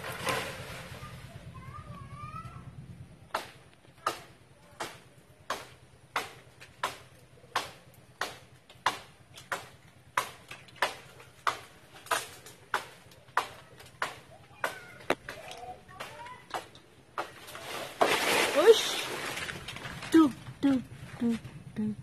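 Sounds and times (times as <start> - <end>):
hand tool cutting tree branch: 3.3 - 20.8.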